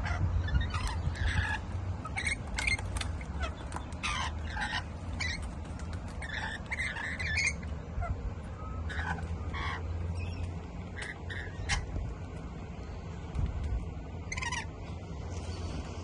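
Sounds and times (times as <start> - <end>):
parrots squawking: 0.0 - 12.1, 14.2 - 14.8
steady low rumble: 0.0 - 16.0.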